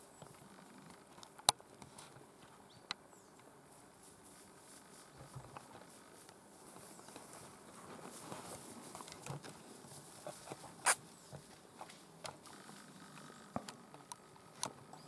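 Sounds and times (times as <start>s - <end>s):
steps through long grass: 3.5s - 13.5s.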